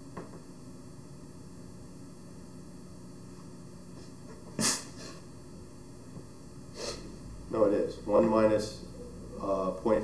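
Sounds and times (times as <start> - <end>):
background hiss and hum: 0.0 - 10.0
sharp breath through nose: 6.7 - 7.1.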